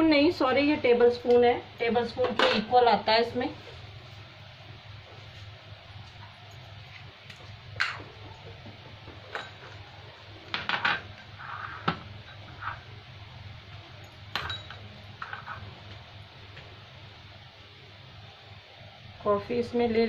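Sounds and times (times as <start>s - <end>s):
spoon and glass jar clinking: 14.0s - 15.6s.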